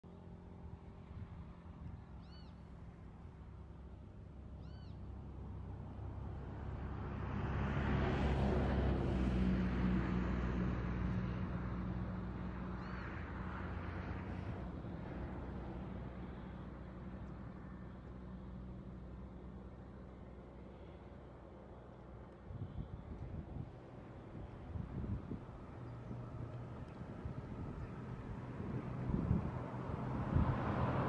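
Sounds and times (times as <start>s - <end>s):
vehicle engine hum: 0.1s - 31.0s.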